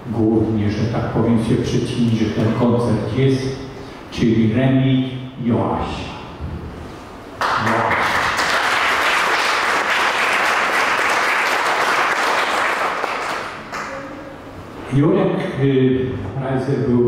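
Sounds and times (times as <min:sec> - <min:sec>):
audience applauding: 0:07.4 - 0:14.0.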